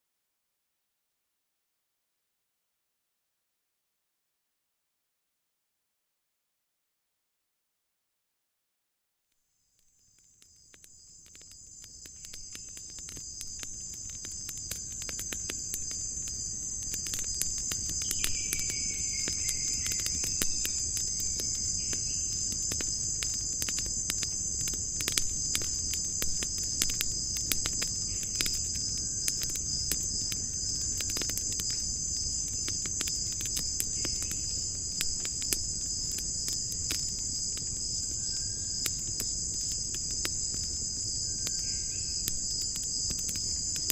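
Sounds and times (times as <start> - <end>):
crickets chirping: 9.9 - 43.9.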